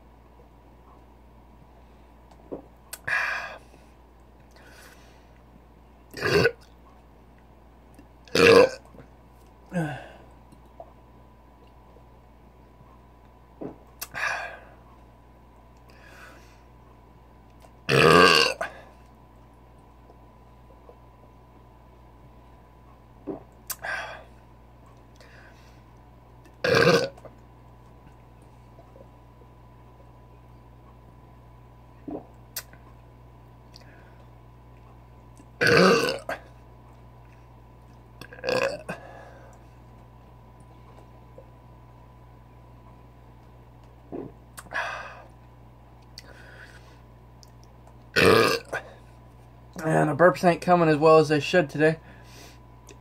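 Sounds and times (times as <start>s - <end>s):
man belching: 6.2s - 6.7s, 8.3s - 8.8s, 17.9s - 18.8s, 26.6s - 27.2s, 35.6s - 36.4s, 38.2s - 39.0s, 48.2s - 48.8s.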